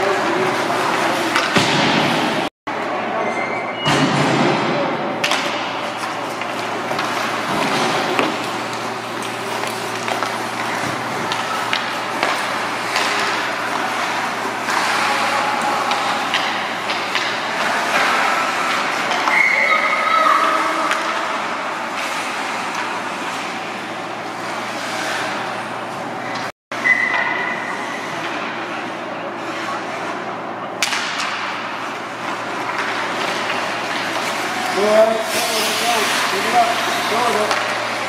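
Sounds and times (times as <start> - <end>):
hockey sticks and puck knocking: 5.2 - 19.5, 30.8 - 34.9
people shouting: 14.8 - 16.4, 19.1 - 21.1.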